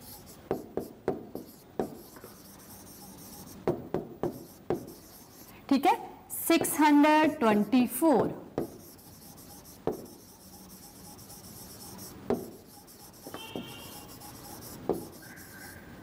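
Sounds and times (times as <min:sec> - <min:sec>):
chalk squeak: 0:00.0 - 0:00.7, 0:01.4 - 0:03.6, 0:04.3 - 0:05.5, 0:08.6 - 0:15.9
chalk tapping on board: 0:00.0 - 0:05.5, 0:08.6 - 0:15.8
chalk scratching on chalkboard: 0:00.0 - 0:05.6, 0:06.5 - 0:07.9, 0:08.6 - 0:15.9.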